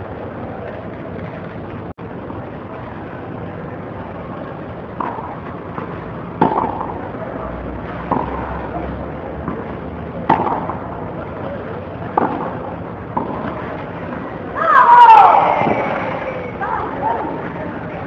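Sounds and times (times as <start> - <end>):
rackets striking tennis ball: 5.0 - 7.2, 7.8 - 14.3, 15.6 - 16.2.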